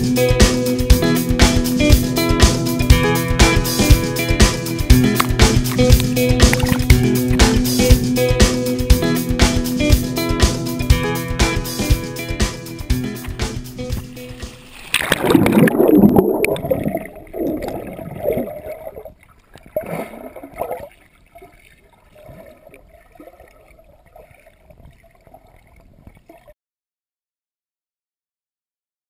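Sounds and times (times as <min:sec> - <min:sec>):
water splashing and gurgling: 0:04.9 - 0:07.9, 0:13.3 - 0:26.6.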